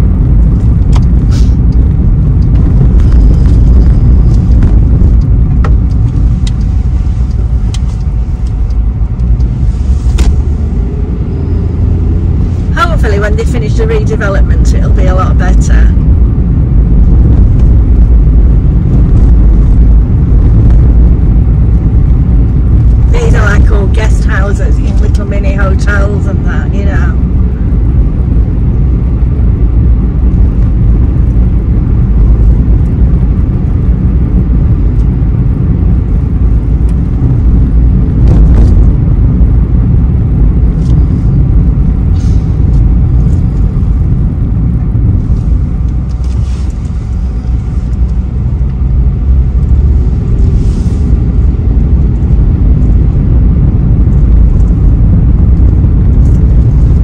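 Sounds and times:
car engine and road noise: 0.0s - 57.0s.

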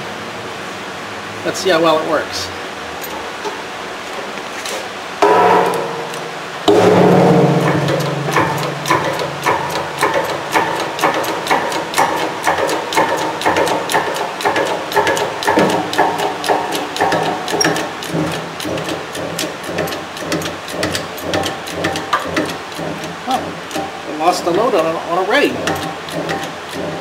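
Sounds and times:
hydraulic jack clicking and knocking: 7.4s - 27.0s.

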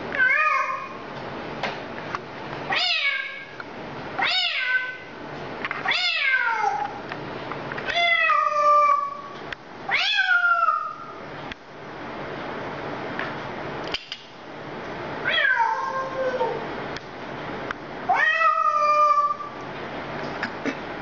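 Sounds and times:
parrot meowing: 7.9s - 9.3s, 9.9s - 11.1s, 18.1s - 19.5s.

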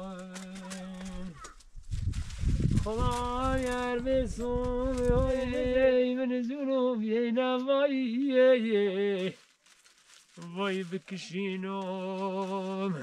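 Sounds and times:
person singing chant-like melody: 10.4s - 13.0s.

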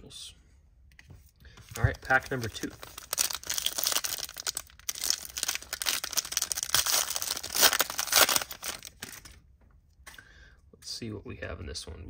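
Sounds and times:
foil wrapper tearing and crinkling: 2.0s - 9.4s.

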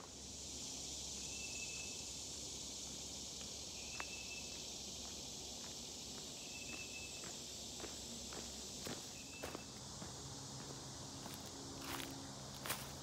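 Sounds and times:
insects droning: 0.0s - 13.0s
footsteps on dirt trail: 4.9s - 13.0s.

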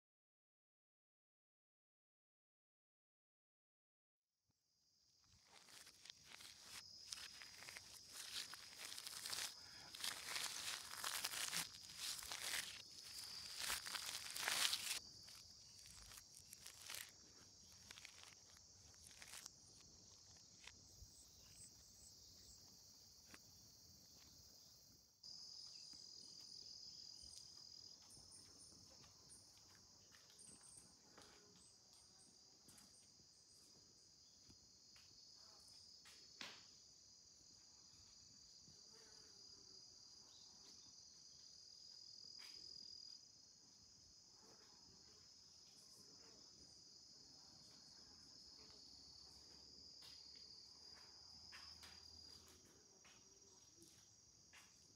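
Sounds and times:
high-pitched insect chorus: 5.4s - 34.4s.

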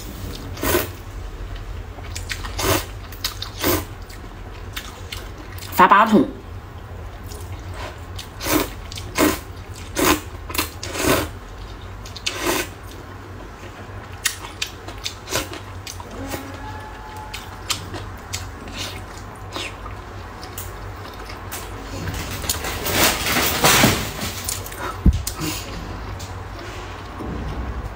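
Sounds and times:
steady low hum: 0.0s - 27.9s
person slurping noodles: 0.6s - 1.0s, 10.8s - 11.3s.

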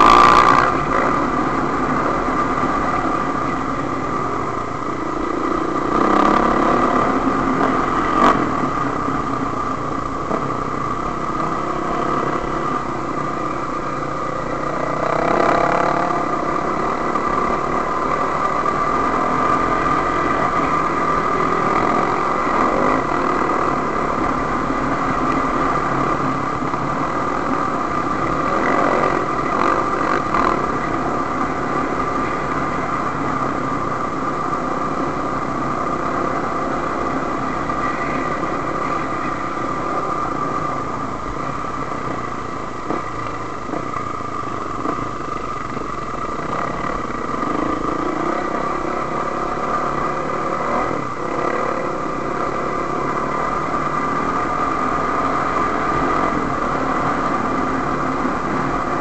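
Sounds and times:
dirt bike engine running: 0.0s - 13.0s.

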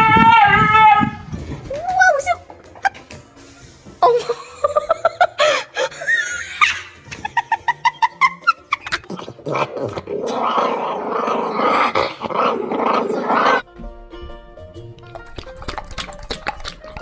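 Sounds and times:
dogs yelping and whining: 0.0s - 1.4s, 5.8s - 7.2s.

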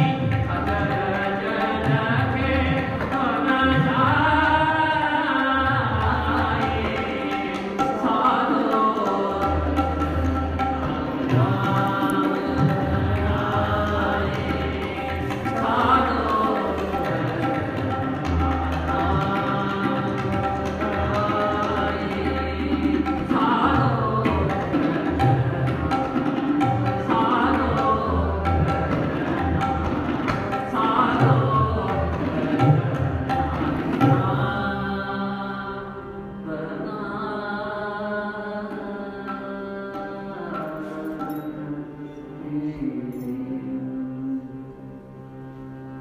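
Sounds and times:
tabla strokes: 0.0s - 35.0s
harmonium notes: 0.0s - 46.0s.

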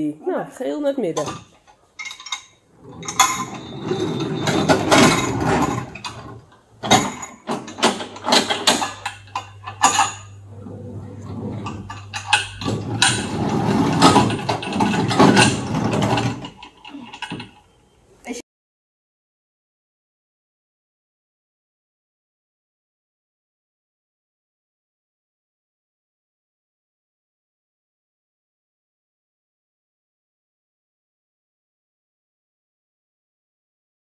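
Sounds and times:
model railway wagons rumbling: 1.2s - 17.6s
metallic clanks of wagons coupling: 1.2s - 17.8s.

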